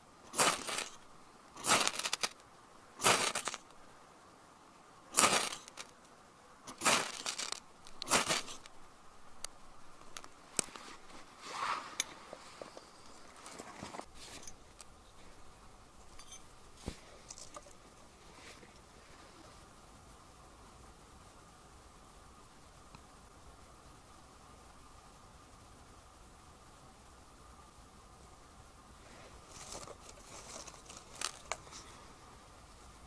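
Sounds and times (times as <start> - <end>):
shavings crackling: 0.2 - 3.8, 5.1 - 6.1, 6.7 - 8.8, 29.1 - 32.0
ferro rod scraping: 0.3 - 1.0, 1.6 - 2.4, 3.0 - 3.7, 5.1 - 5.9, 6.7 - 8.7, 10.1 - 14.9.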